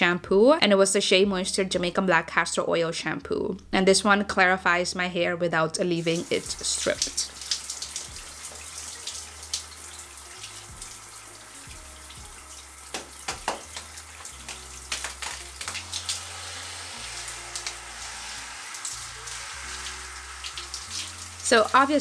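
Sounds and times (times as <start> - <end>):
shower water running: 5.9 - 22.0
shower head spraying hair: 6.0 - 22.0
wet lather squelches: 6.1 - 11.2, 12.6 - 21.9.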